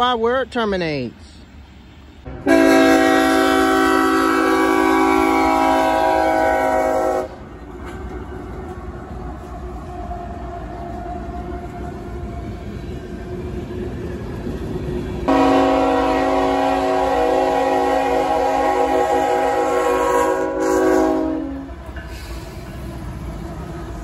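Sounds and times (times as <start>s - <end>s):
freight train rumbling past: 0.0s - 24.0s
locomotive air horn chord: 2.3s - 7.4s, 15.3s - 22.3s.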